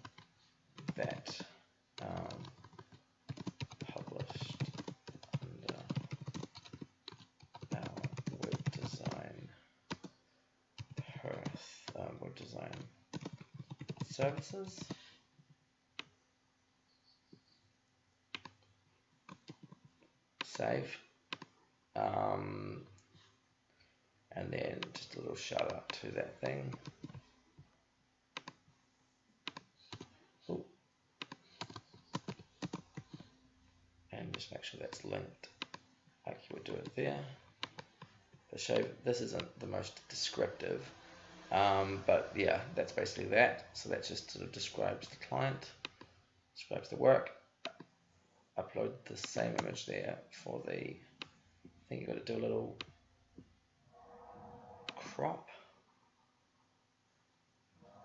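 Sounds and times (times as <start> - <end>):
computer keyboard typing: 0.0 - 10.2, 10.8 - 12.0, 12.6 - 15.0, 18.4 - 18.6, 19.3 - 20.6, 21.3 - 21.5, 24.8 - 27.2, 28.4 - 28.6, 29.5 - 30.2, 31.2 - 33.3, 34.9 - 35.8, 37.6 - 40.3.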